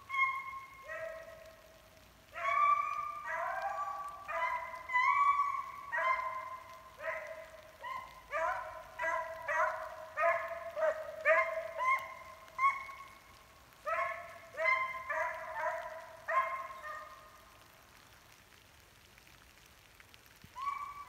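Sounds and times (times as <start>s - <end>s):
hunting dog baying: 2.3s - 13.1s.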